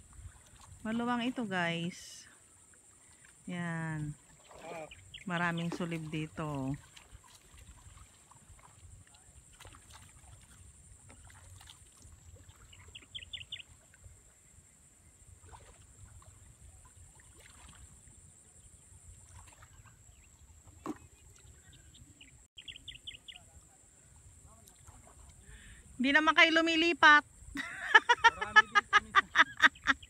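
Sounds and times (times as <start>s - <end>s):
water sloshing and splashing: 0.0s - 22.5s, 24.1s - 25.6s
people wading in water: 0.0s - 30.0s
bird chirping: 4.8s - 5.7s, 12.6s - 14.7s, 21.0s - 23.5s.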